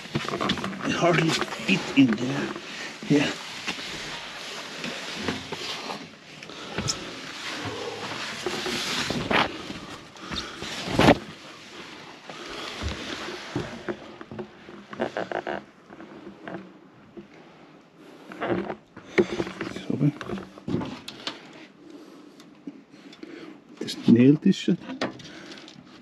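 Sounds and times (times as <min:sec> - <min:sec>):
plastic tarpaulin rustling: 0:00.0 - 0:16.3.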